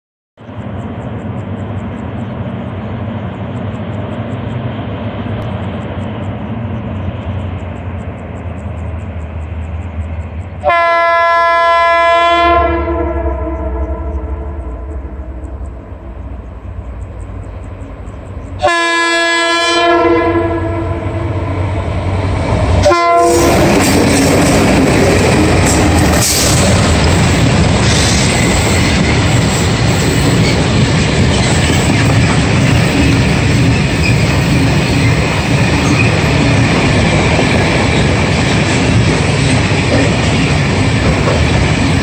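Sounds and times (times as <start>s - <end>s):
train horn blasts: 10.6s - 15.5s, 18.6s - 21.9s, 22.7s - 23.9s
wheels clattering on rails: 21.9s - 42.0s.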